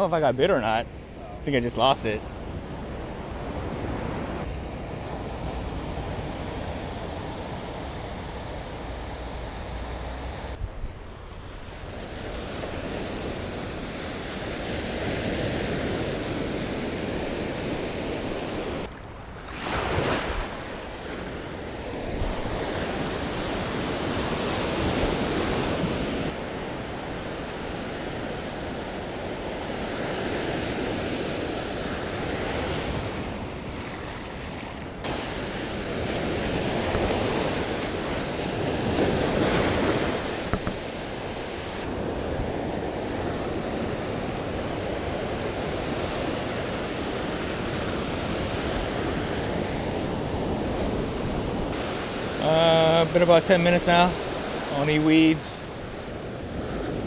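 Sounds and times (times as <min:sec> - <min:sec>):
ocean surf breaking: 0:00.0 - 0:57.0.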